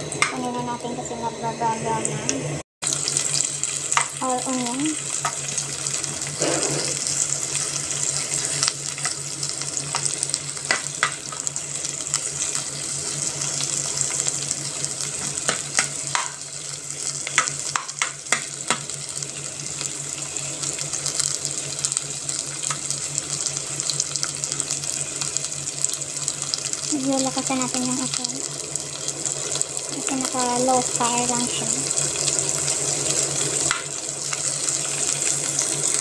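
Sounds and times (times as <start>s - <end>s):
low hum: 0.0s - 15.1s
onions sizzling in oil: 2.8s - 36.0s.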